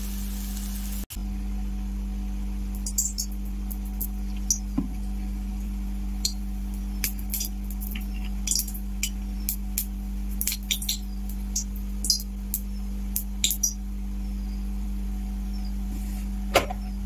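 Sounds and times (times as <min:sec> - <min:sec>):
steady low hum: 0:00.0 - 0:17.0
oil popping and crackling: 0:02.7 - 0:05.2, 0:06.2 - 0:13.8.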